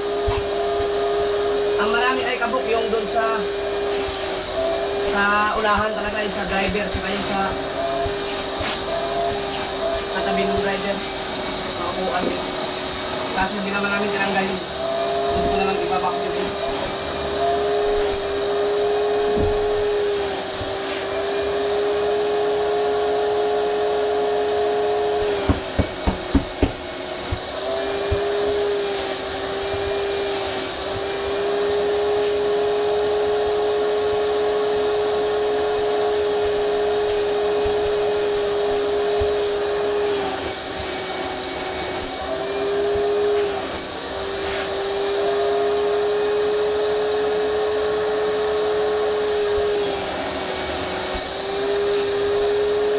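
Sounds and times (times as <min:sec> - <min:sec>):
vacuum cleaner running: 0:00.0 - 0:52.9
sharp knocks: 0:25.4 - 0:27.5.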